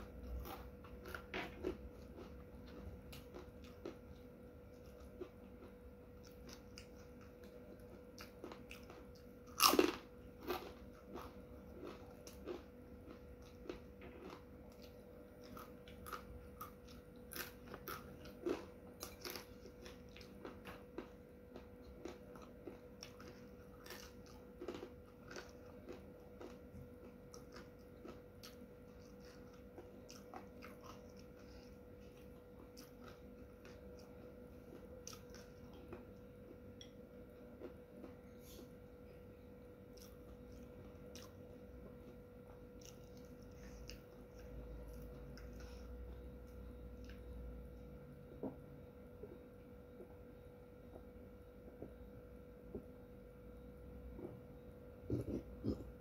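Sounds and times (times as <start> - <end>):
chips crunching being chewed: 0.0 - 37.0, 39.9 - 47.4.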